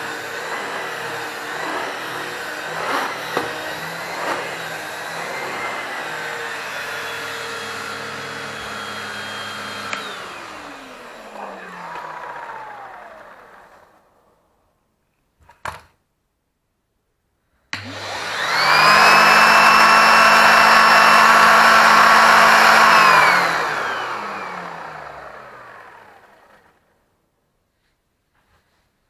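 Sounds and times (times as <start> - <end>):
vacuum cleaner motor whine: 0.0 - 14.3, 17.8 - 26.9
vacuum cleaner switch click: 9.8 - 10.3, 17.7 - 18.0.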